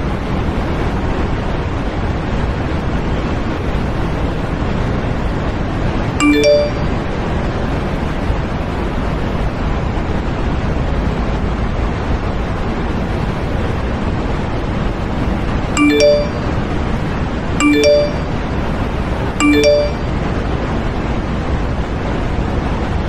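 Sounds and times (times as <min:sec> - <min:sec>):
phone notification chime: 0:06.2 - 0:07.1, 0:15.8 - 0:16.8, 0:17.6 - 0:18.5, 0:19.4 - 0:20.2.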